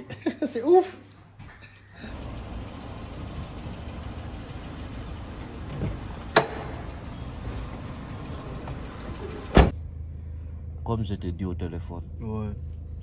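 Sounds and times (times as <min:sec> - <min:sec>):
street noise rumble: 0:02.0 - 0:13.0
car door unlatching click: 0:05.4 - 0:07.0.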